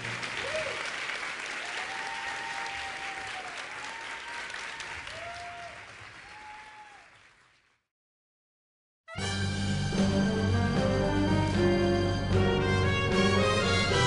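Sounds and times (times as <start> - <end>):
audience applauding: 0.0 - 7.9
drawn-out cheers: 1.6 - 7.1.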